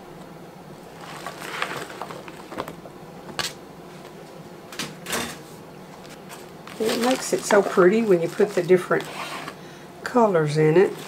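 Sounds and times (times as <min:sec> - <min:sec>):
leafy vegetables rustling: 0:00.8 - 0:02.8, 0:06.0 - 0:09.6, 0:10.3 - 0:11.0.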